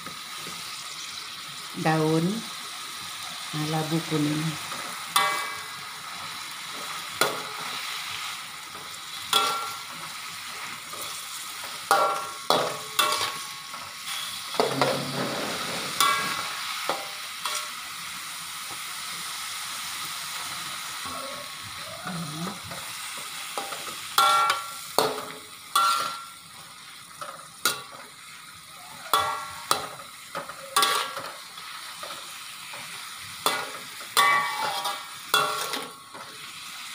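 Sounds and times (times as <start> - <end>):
vegetables sizzling in a pan: 0.0 - 36.9
metal spatula scraping a pan: 4.7 - 17.9, 22.6 - 26.4, 29.0 - 36.7.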